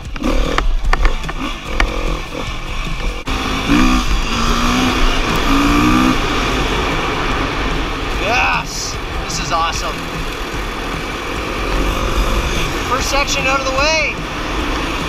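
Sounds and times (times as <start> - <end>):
knocks and rattles: 0.0 - 3.3
dirt bike engine running: 0.0 - 15.0.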